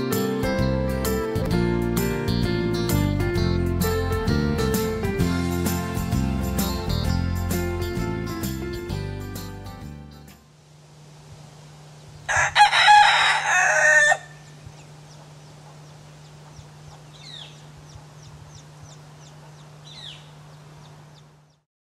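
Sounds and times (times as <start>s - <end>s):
steady low hum: 10.4s - 12.5s, 14.2s - 21.6s
rooster crowing: 12.3s - 14.6s.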